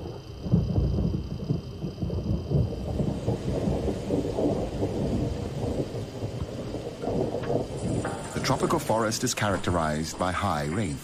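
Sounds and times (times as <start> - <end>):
rolling thunder: 0.0 - 10.2
rain: 0.0 - 11.0.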